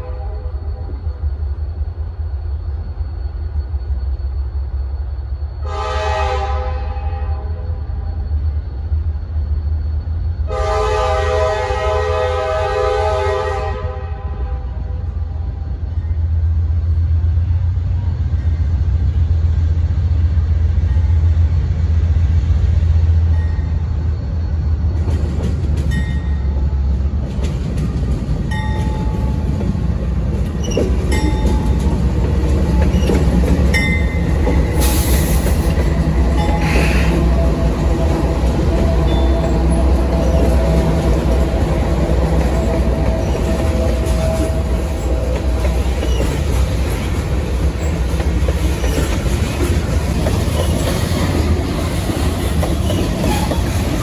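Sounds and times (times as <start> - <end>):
train horn blast: 0.0 - 0.8, 5.6 - 7.7, 10.5 - 15.3
rail squeals: 0.0 - 54.0
train wheels clicking: 22.1 - 54.0.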